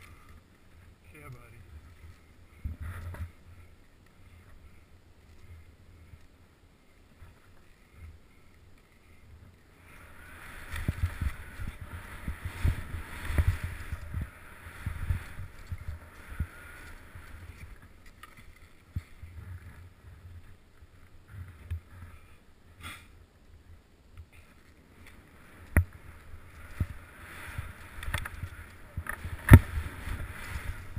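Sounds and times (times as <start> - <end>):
skis scraping over snow: 0.1 - 22.3, 24.4 - 30.9
wind buffeting microphone: 10.0 - 17.8, 25.5 - 30.9.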